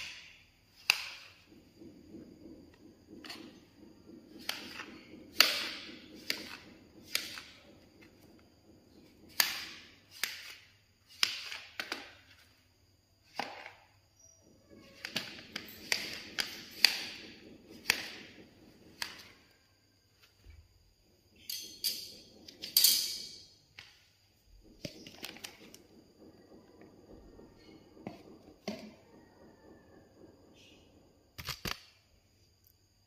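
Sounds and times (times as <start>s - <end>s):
knife cutting fruit on a tray: 3.1s - 12.6s, 14.7s - 19.6s.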